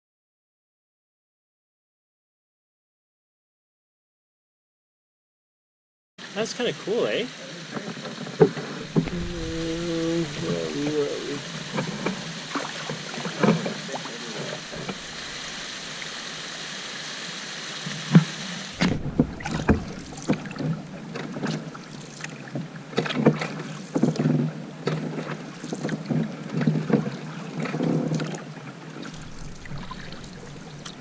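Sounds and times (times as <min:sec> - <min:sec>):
small waterfall hissing: 0:06.2 - 0:18.9, 0:19.5 - 0:24.8, 0:28.8 - 0:31.0
paddle strokes splashing: 0:06.8 - 0:31.0.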